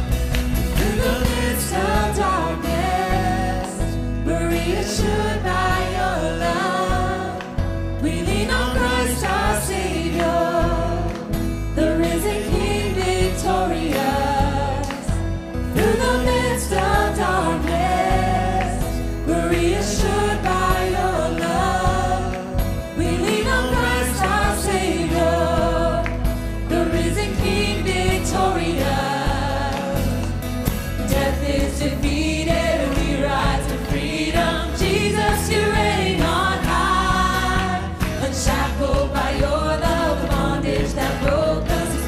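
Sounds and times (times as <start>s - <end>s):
acoustic guitar: 0.0s - 42.0s
bass guitar line: 0.0s - 42.0s
keyboard: 0.0s - 42.0s
group singing praise song: 0.5s - 42.0s.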